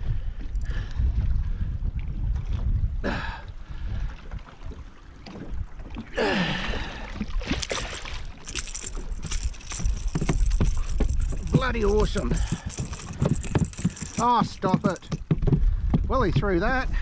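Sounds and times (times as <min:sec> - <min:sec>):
wind rumbling on microphone: 0:00.0 - 0:17.0
fish splashing in water: 0:06.6 - 0:09.8
knocks and rattles in metal boat: 0:07.4 - 0:16.7.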